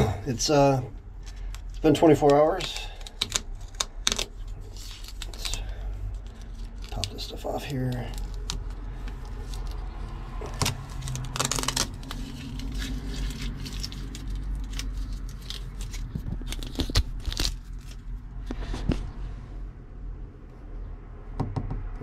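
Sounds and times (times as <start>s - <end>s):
tape peeling and crumpling: 0.3s - 18.9s
tape tearing rasp: 1.4s - 18.2s.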